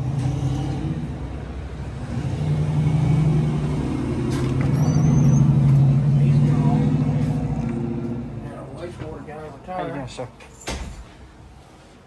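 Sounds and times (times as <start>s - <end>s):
car engine humming: 0.0s - 9.3s.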